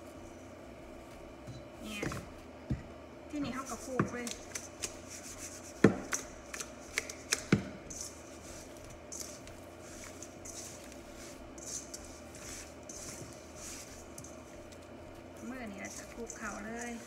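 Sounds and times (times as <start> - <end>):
gritty salt swishing: 7.9 - 14.7, 15.3 - 17.0.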